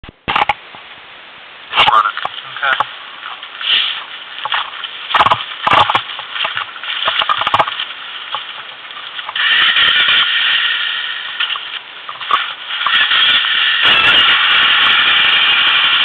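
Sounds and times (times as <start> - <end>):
atv engine running: 3.6 - 16.0
knocks and rattles: 4.4 - 10.1.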